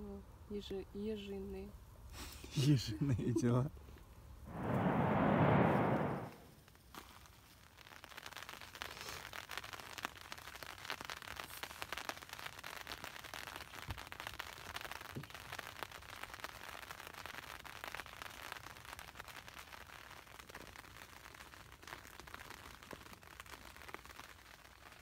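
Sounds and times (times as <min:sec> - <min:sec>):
crackling rustle of handling: 0:06.5 - 0:25.0.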